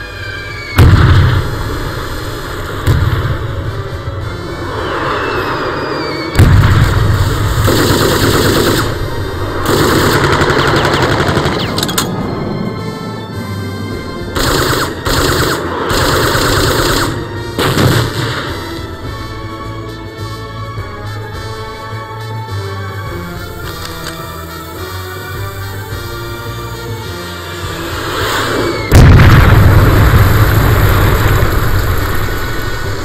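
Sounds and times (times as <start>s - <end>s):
heavy machine gun bursts: 14.4s - 18.1s.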